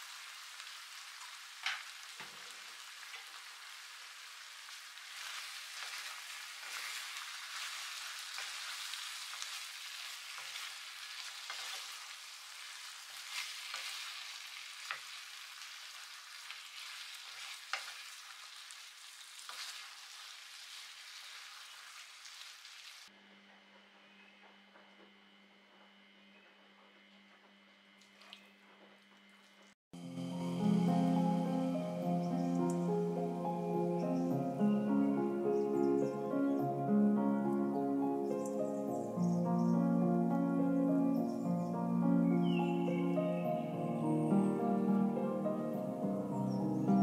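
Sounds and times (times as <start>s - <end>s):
chicken wings sizzling in a pan: 0.0s - 23.1s.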